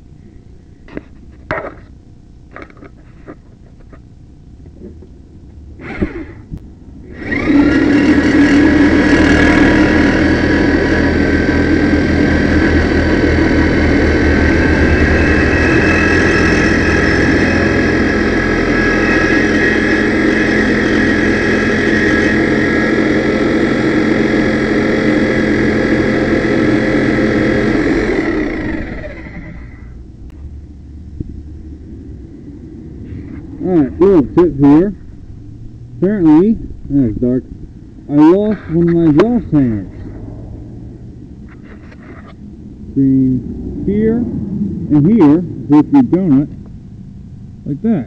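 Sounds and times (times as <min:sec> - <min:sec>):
power saw cutting steel pipe: 0:07.1 - 0:30.0.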